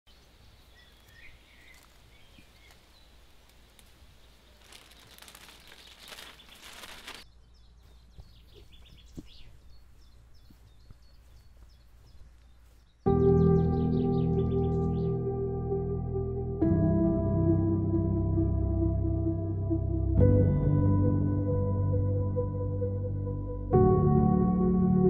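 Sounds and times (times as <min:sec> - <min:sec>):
rustling foliage: 0:00.1 - 0:13.2
birds chirping: 0:00.1 - 0:15.4.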